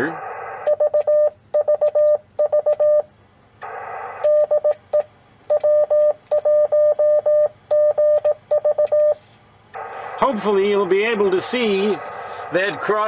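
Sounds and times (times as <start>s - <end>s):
morse code tone: 0.7s - 3.1s, 4.2s - 9.2s
receiver hiss: 9.0s - 13.0s.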